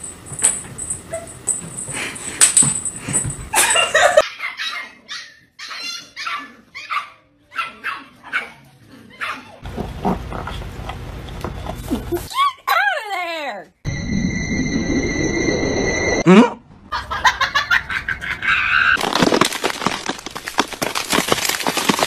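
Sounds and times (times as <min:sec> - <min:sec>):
dogs barking: 0:04.2 - 0:10.3
dogs tussling low rumble: 0:09.6 - 0:12.3.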